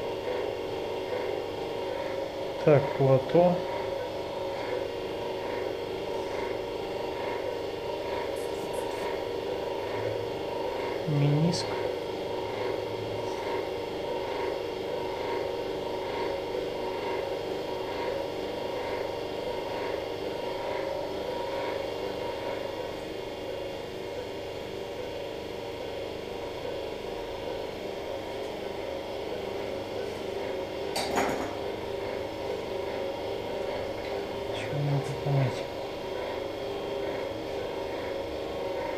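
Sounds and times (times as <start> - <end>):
electrical hum of equipment: 0.0 - 38.9.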